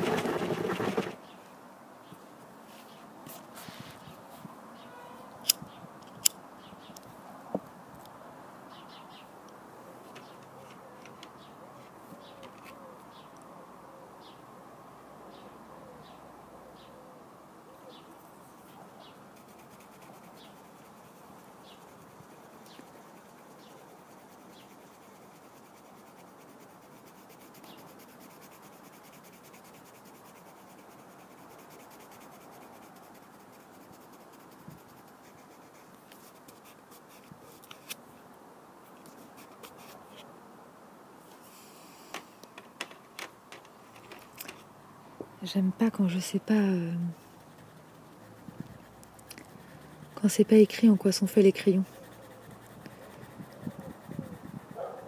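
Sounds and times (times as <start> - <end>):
colored pencil scratching on paper: 19.3 - 37.6, 46.0 - 55.0.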